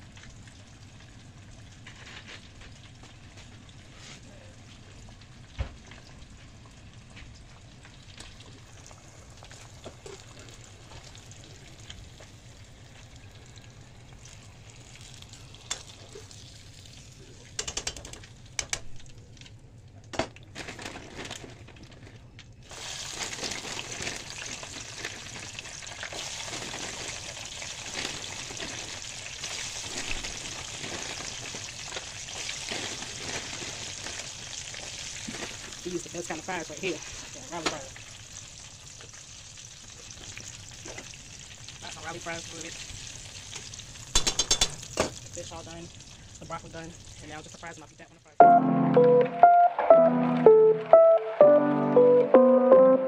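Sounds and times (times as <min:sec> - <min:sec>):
hot oil sizzling: 0:00.0 - 0:19.8, 0:22.6 - 0:48.3
fries bubbling in oil: 0:00.0 - 0:48.4.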